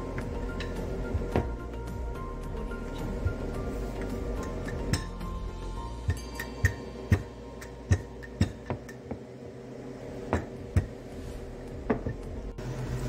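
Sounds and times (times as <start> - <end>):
rolling pin knocking on countertop: 11.8 - 12.2.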